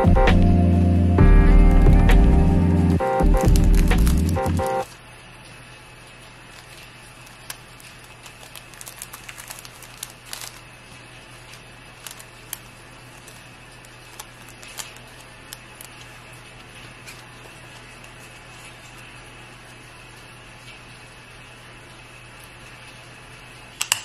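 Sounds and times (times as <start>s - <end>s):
low hum: 0.0s - 4.8s
cellophane sleeves crinkling: 2.9s - 5.0s, 6.4s - 19.1s.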